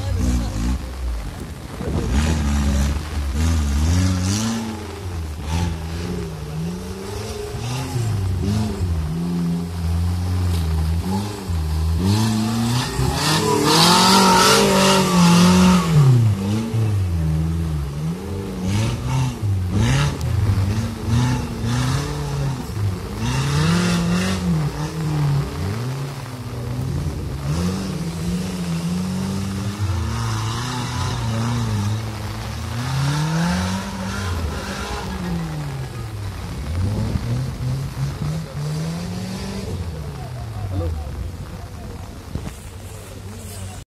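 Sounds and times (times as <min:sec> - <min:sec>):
rushing noise: 0:00.0 - 0:43.8
engine revving hard: 0:02.0 - 0:26.2, 0:27.0 - 0:41.6.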